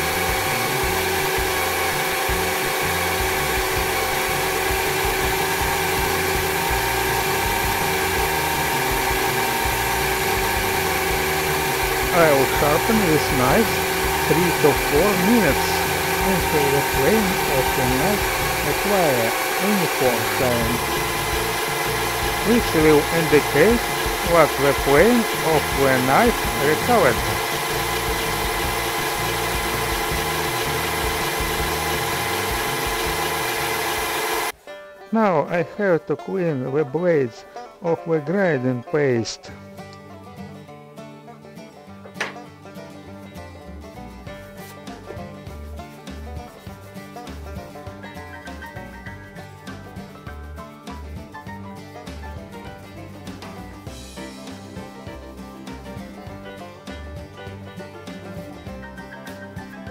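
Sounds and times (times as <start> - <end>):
drill grinding blade on disc: 0.0 - 34.6.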